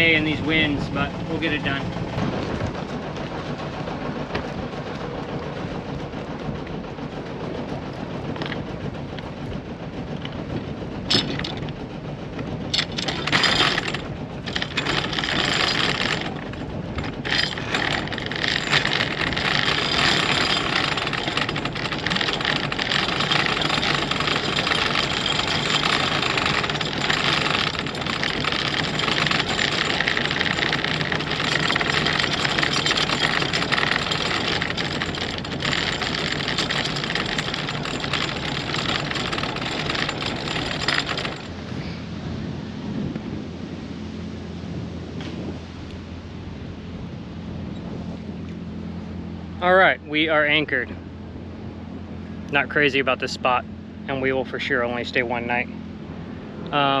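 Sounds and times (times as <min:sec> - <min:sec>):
wind rushing over microphone: 0:00.0 - 0:21.4, 0:41.3 - 0:50.6
boat engine running: 0:00.0 - 0:57.0.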